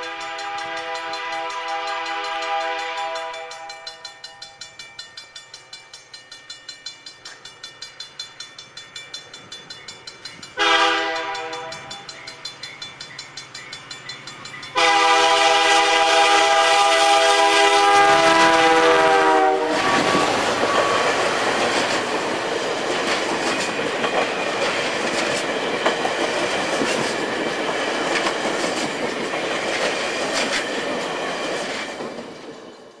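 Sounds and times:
locomotive air horn blasts: 0.0s - 4.0s, 10.6s - 12.0s, 14.8s - 21.2s
train wheel and rail noise: 0.0s - 33.0s.

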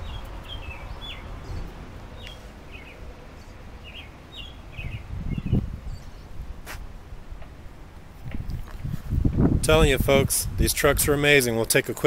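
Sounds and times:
songbird chirping: 0.0s - 6.4s.

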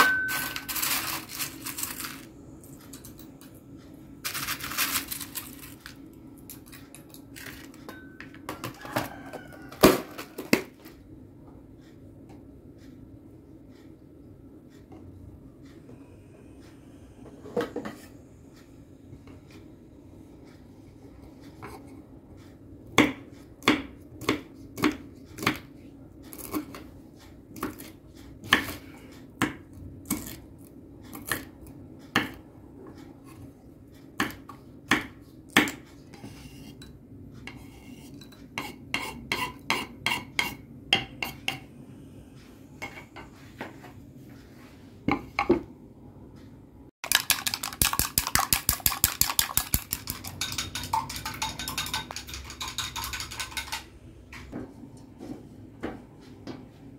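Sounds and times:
knife chopping on wooden board: 23.0s - 25.7s, 34.2s - 36.3s.

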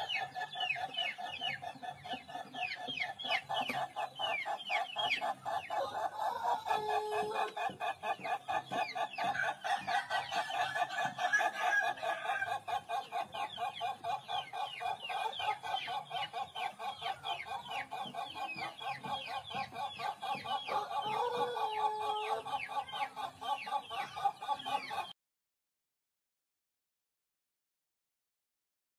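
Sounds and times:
rooster cackling crow: 5.8s - 7.5s, 9.2s - 12.6s, 20.7s - 22.5s.

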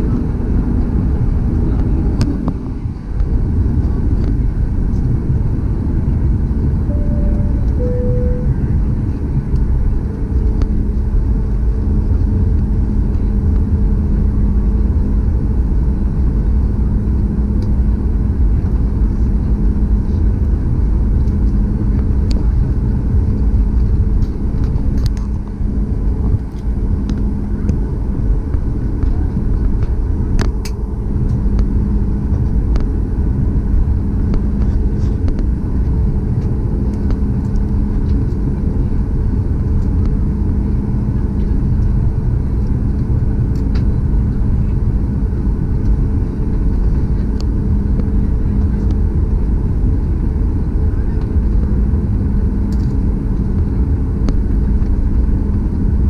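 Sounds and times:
aircraft cabin engine rumble: 0.0s - 56.0s
two short cabin tones: 6.9s - 8.8s.

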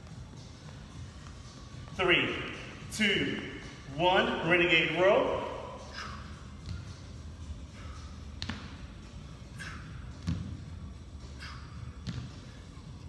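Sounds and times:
short exhale: 5.8s - 6.5s, 9.5s - 10.1s, 11.4s - 11.8s.

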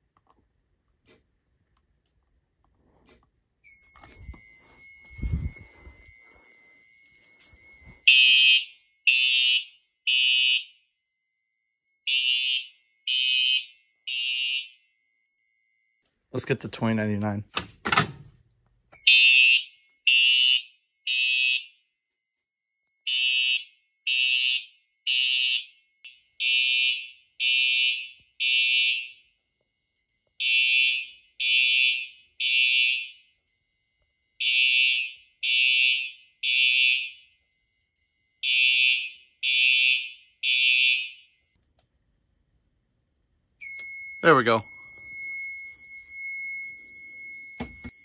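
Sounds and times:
faint steady high tone: 2.7s - 9.1s, 10.7s - 12.1s, 14.8s - 17.5s, 29.2s - 30.4s, 43.5s - 48.0s
fire alarm horn blasts: 3.8s - 10.9s, 12.0s - 16.1s, 19.0s - 22.2s, 23.0s - 41.5s, 43.6s - 48.0s.

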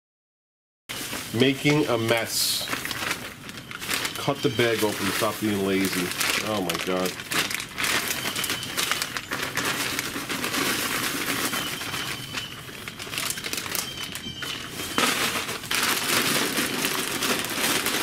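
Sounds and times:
plastic bag crinkling: 0.9s - 18.0s
wood pellets pouring: 0.9s - 18.0s.

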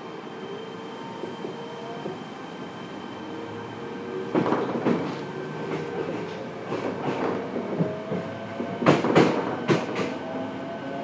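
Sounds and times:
train rumble from inside: 3.4s - 11.0s.

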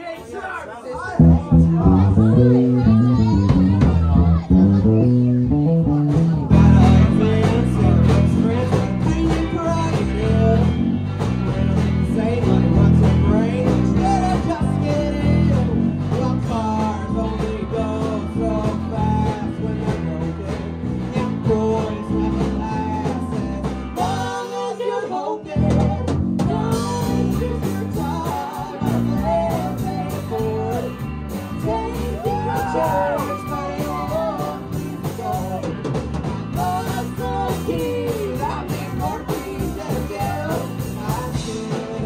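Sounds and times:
lead vocals: 0.0s - 42.0s
bass guitar: 1.1s - 42.0s
electric guitar: 1.2s - 24.5s, 25.5s - 42.0s
drum kit: 1.2s - 24.8s, 25.4s - 42.0s.

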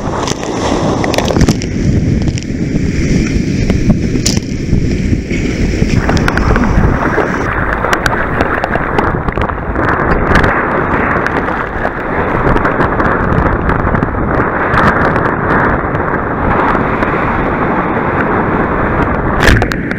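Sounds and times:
sea water rushing and splashing: 0.0s - 19.9s
wind buffeting microphone: 0.0s - 19.9s.

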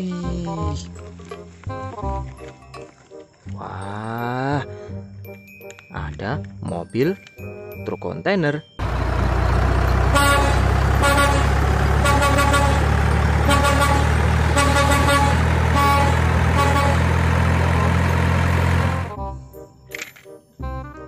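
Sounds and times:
truck engine rumbling: 8.8s - 19.2s
air horn toots: 10.0s - 18.1s.

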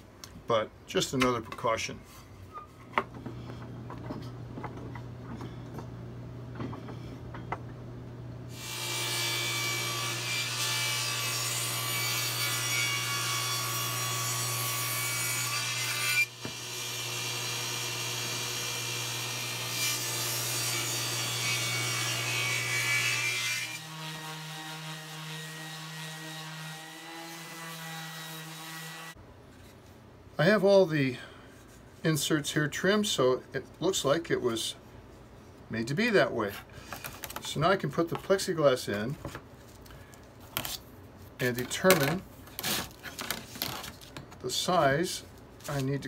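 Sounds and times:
table saw ripping wood: 8.5s - 29.2s, 41.7s - 44.1s.

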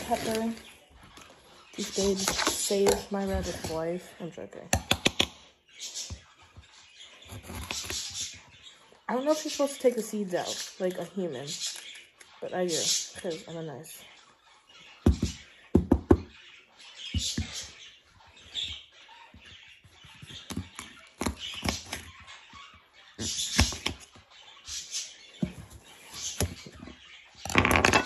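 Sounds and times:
knife cutting pepper: 7.3s - 8.3s.

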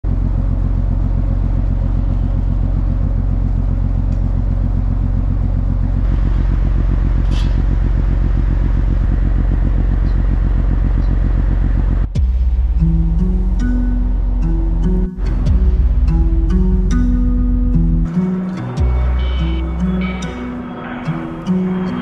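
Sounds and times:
machine humming with rapid pulse: 6.0s - 13.6s, 14.2s - 22.0s.

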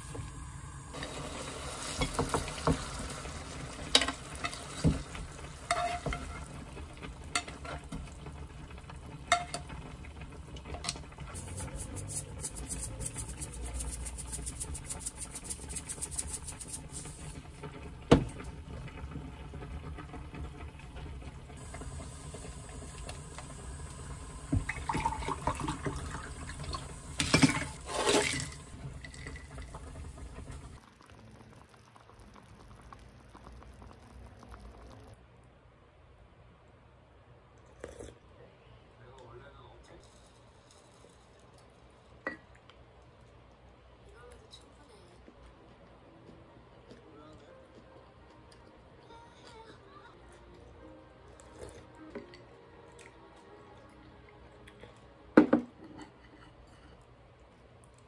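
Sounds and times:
spoon scraping in frying pan: 3.9s - 6.7s, 27.2s - 28.6s
shaker rattling: 11.4s - 17.1s.

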